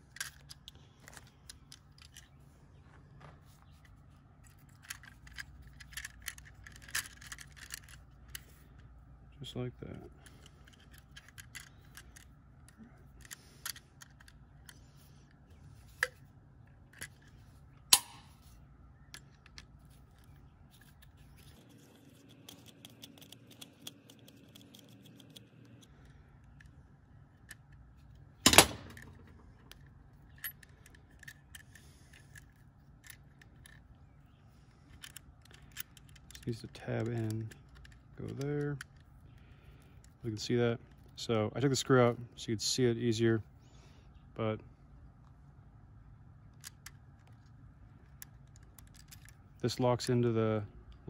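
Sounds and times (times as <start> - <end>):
sharp snap: 17.9 - 18.4
wire and screwdriver clicking on plastic: 19.1 - 26.8, 34.9 - 39.1.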